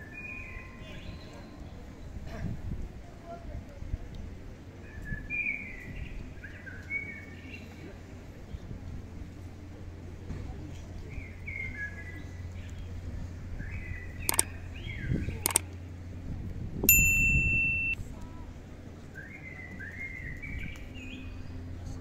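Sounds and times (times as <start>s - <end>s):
sharp clicks: 14.3s - 14.5s, 15.4s - 15.6s, 16.8s - 18.0s
electronic chime: 16.8s - 18.0s.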